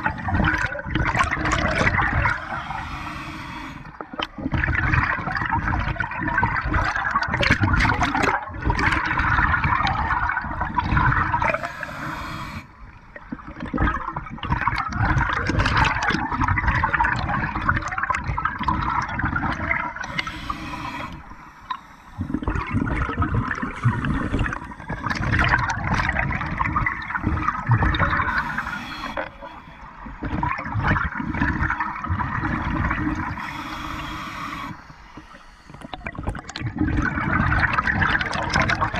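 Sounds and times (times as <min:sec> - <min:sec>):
gurgling exhaled bubbles: 0:00.0 - 0:38.9
regulator hissing inhale: 0:02.2 - 0:04.0, 0:11.4 - 0:12.8, 0:20.0 - 0:22.5, 0:23.6 - 0:25.4, 0:27.2 - 0:30.2, 0:33.2 - 0:36.1.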